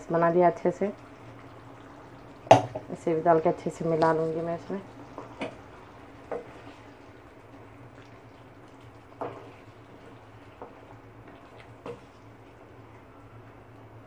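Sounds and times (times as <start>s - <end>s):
curry bubbling in a pan: 0.0s - 14.0s
spoon scraping a pan: 9.2s - 9.7s.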